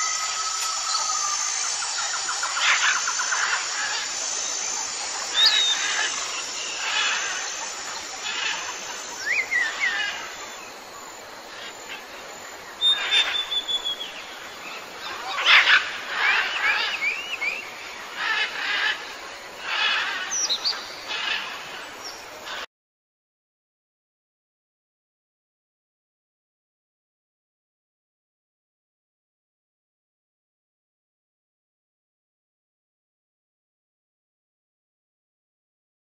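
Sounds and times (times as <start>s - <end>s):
birds chirping: 0.0s - 22.7s.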